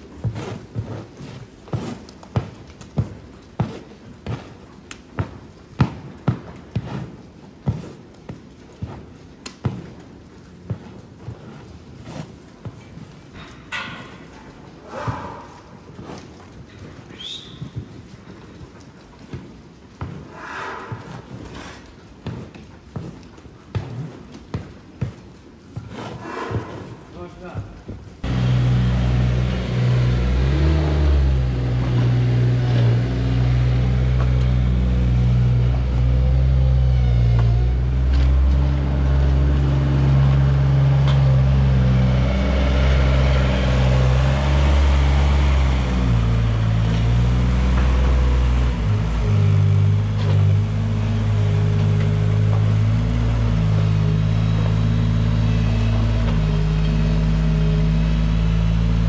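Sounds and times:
farm loader engine revving: 28.2s - 59.0s.

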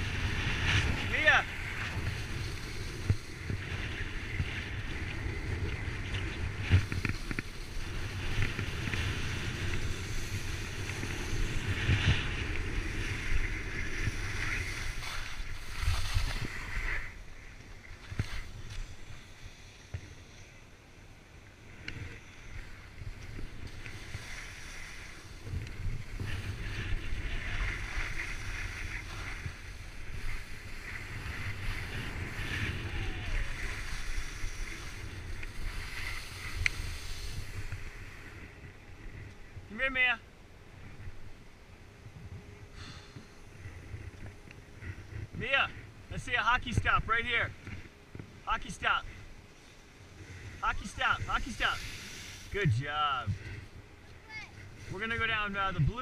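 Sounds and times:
skis scraping over snow: 0.0s - 19.9s, 22.1s - 39.1s, 48.7s - 56.0s
wind on microphone: 0.0s - 20.2s, 21.9s - 39.7s.

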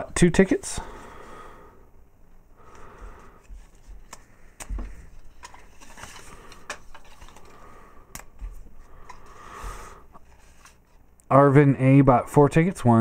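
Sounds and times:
paper crinkling: 5.1s - 7.6s.

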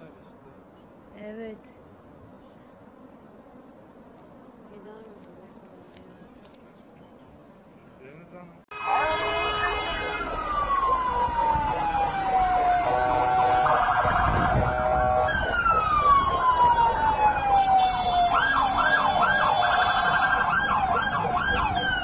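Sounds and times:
horn-like blast: 8.7s - 10.5s, 12.8s - 15.5s
emergency siren wailing: 8.7s - 22.0s
siren yelp: 8.7s - 22.0s.

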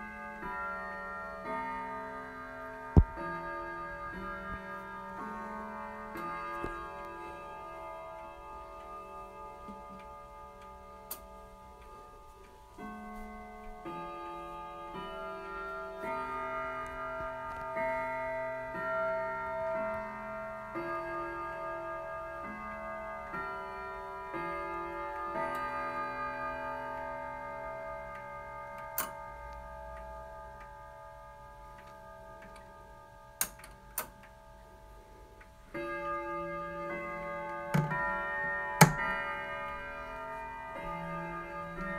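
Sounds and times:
clock striking the hour: 0.0s - 34.9s, 35.7s - 41.9s
clock chime melody: 0.0s - 41.9s
clock ticking: 35.4s - 41.9s.

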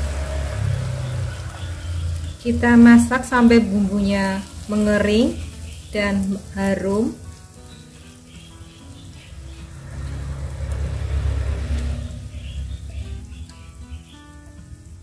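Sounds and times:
paste sizzling in oil: 0.0s - 15.0s
soft background music: 0.0s - 15.0s
low rumble: 9.3s - 13.3s.

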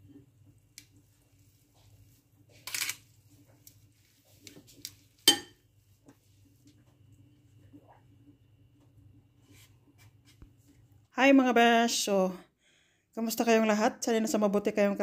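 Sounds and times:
faint low hum: 0.0s - 11.2s
metal clink on a bowl: 5.3s - 5.6s.

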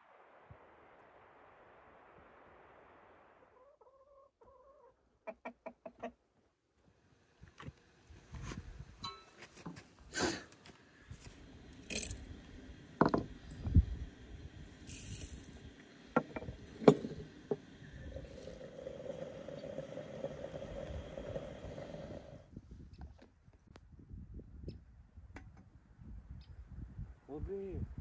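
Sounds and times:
glass clinking: 9.0s - 9.4s
metal scraping and clinking: 11.8s - 12.3s.

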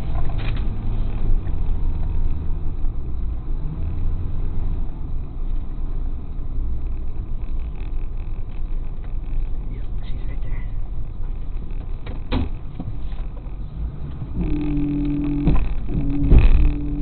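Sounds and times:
truck engine low rumble: 0.0s - 17.0s.

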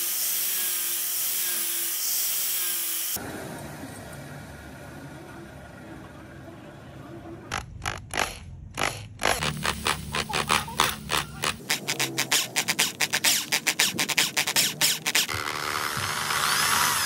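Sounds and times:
drill bit scraping through steel: 8.1s - 17.0s.

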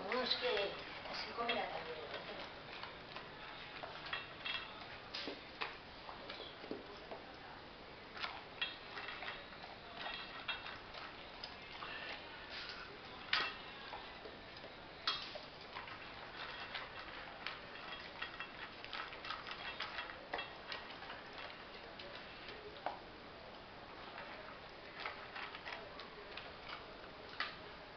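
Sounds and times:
dog crunching kibble: 8.1s - 23.0s, 23.9s - 27.7s.

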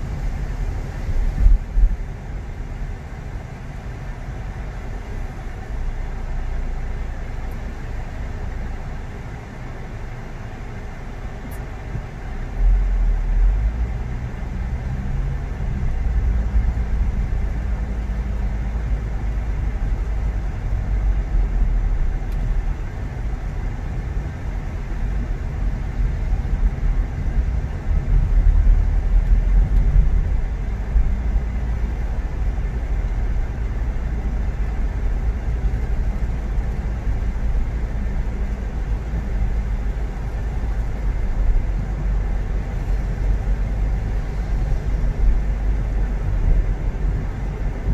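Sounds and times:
car engine and road rumble: 0.0s - 47.9s.

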